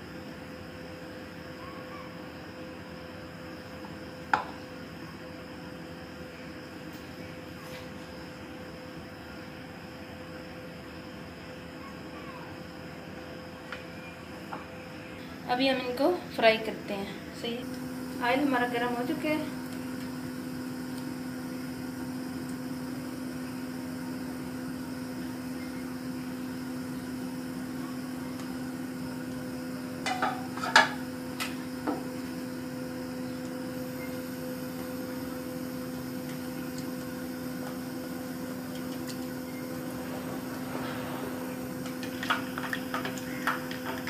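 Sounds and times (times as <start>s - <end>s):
low mechanical hum: 0.0s - 44.0s
faint hiss: 39.2s - 43.8s.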